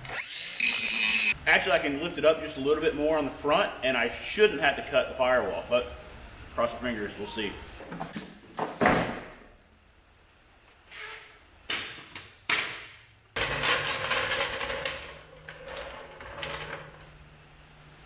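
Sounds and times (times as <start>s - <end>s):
floor jack rolling on concrete: 13.4s - 17.1s.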